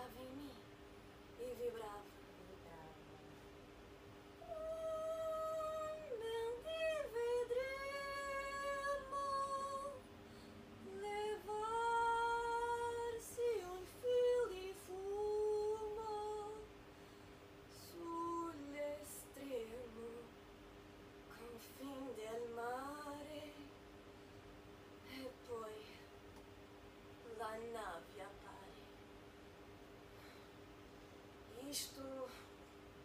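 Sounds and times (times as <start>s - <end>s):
woman singing without words: 0.0s - 0.6s, 1.4s - 3.2s, 4.4s - 10.1s, 10.8s - 16.7s, 17.7s - 20.4s, 21.3s - 23.7s, 25.0s - 26.1s, 27.2s - 28.9s, 31.5s - 32.5s
faint steady hum: 0.0s - 33.0s.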